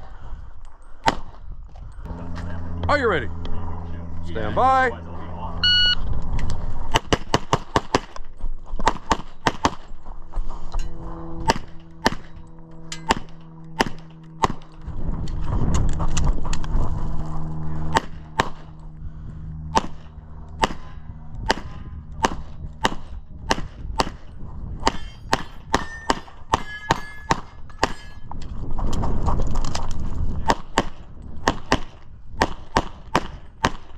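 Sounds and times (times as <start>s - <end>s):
low rumbling noise: 0.0s - 33.9s
pistol shots: 13.1s - 14.7s, 19.7s - 20.0s, 20.6s - 24.2s.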